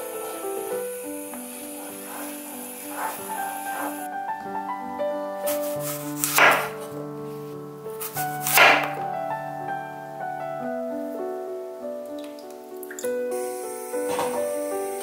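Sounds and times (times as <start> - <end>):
soft piano music: 0.0 - 15.0
knife cutting apple: 5.5 - 6.8, 8.0 - 8.9.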